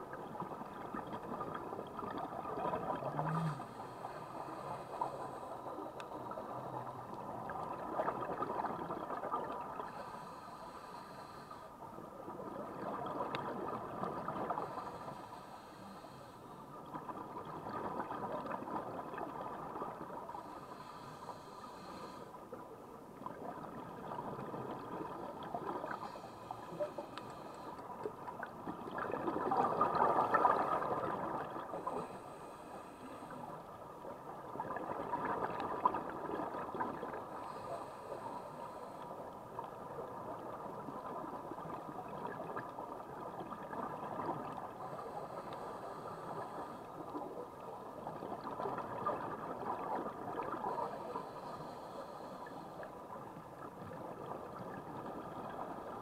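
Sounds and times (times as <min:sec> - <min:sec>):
faint regulator hiss: 0:00.2 - 0:28.6, 0:30.0 - 0:34.7, 0:36.5 - 0:56.0
diver exhaling bubbles underwater: 0:01.4 - 0:04.6.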